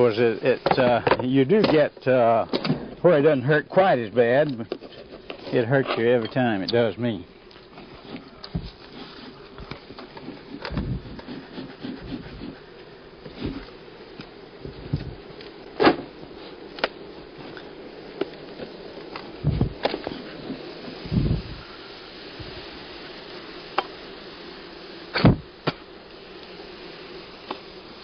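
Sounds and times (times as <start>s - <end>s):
heavy thumps: 8.1s - 8.8s, 9.6s - 12.6s, 14.6s - 15.2s, 19.4s - 21.6s, 25.2s - 25.8s.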